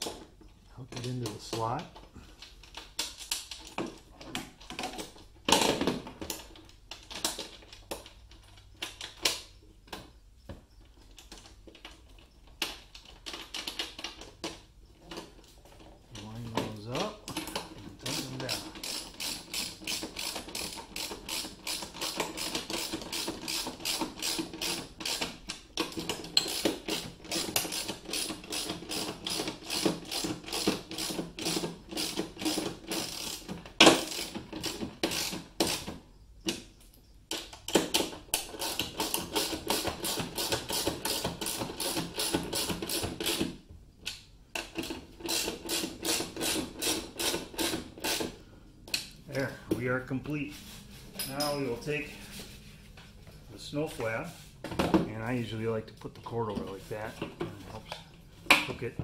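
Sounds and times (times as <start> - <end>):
ratchet wrench clicking: 18.1 - 25.4.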